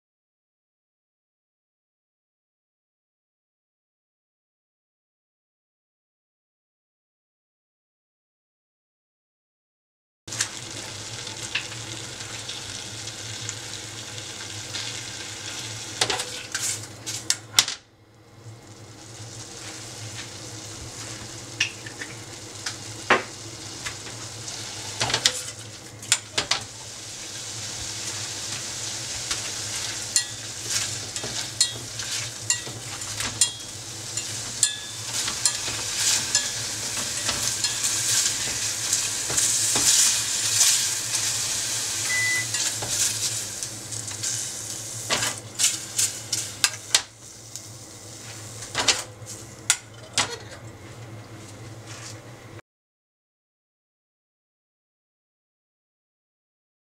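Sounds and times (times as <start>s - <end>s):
food sizzling in a saucepan: 10.3s - 17.3s, 18.4s - 49.7s.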